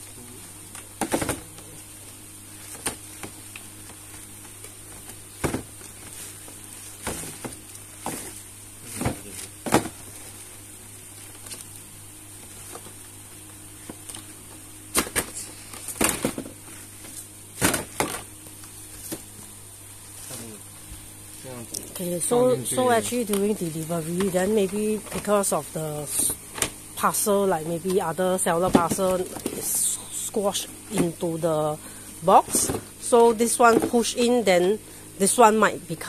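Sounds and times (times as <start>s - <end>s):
steady low hum: 0.0s - 36.0s
plastic baskets knocking and scraping: 1.0s - 1.6s, 4.9s - 10.3s, 13.8s - 18.3s, 28.6s - 29.9s, 32.4s - 34.2s.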